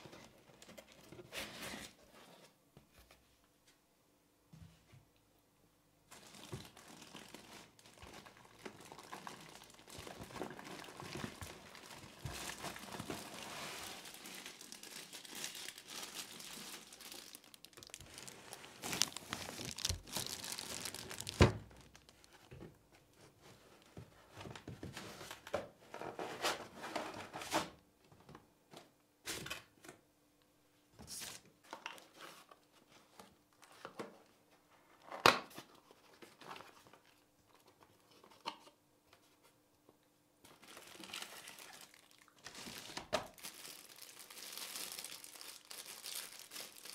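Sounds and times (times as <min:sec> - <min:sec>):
plastic bag crinkling: 0:06.1 - 0:22.5, 0:40.5 - 0:46.9.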